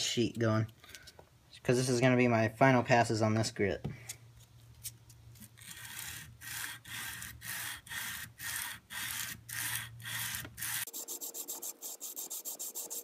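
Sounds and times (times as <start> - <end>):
sandpaper rubbing steel blade: 5.5 - 13.0.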